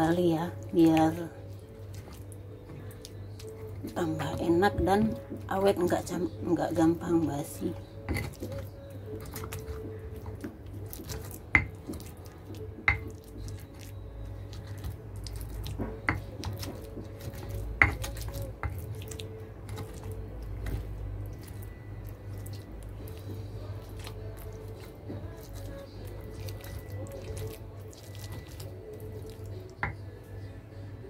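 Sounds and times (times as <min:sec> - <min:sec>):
stone pestle grinding paste: 0:07.8 - 0:30.0.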